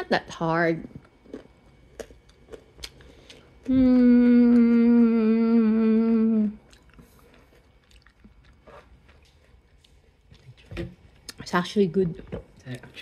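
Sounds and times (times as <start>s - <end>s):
faint chewing: 0.8s - 11.4s
person humming mmm: 3.6s - 6.8s.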